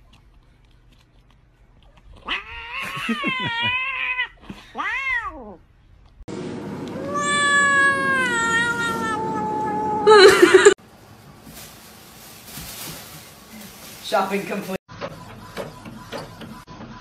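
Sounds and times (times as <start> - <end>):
cat meowing: 2.2 - 5.6, 7.0 - 10.1
cat yowling: 2.2 - 5.6, 7.0 - 10.3.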